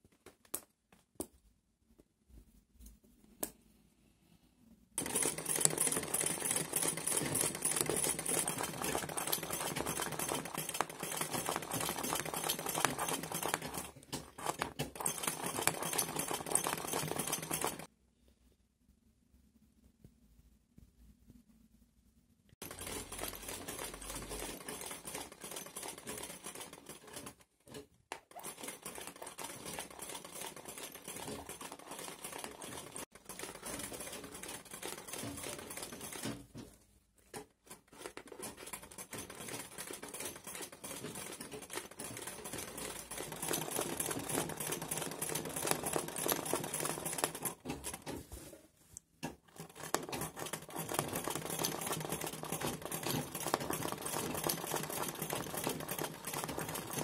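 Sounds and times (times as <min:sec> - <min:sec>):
sewing machine stitching fast: 0:05.0 - 0:17.9, 0:22.6 - 0:36.6, 0:37.7 - 0:48.2, 0:49.4 - 0:57.0.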